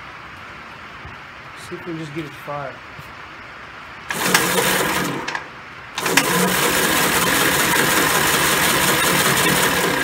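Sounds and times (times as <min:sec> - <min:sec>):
engine cranking without firing: 0:04.1 - 0:10.0.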